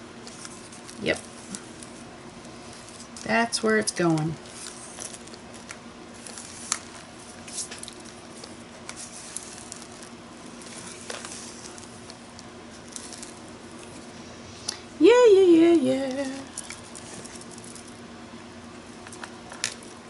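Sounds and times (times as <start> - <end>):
faint steady hum: 0.0 - 20.0
soft paper rustling: 0.2 - 3.4, 4.0 - 14.1.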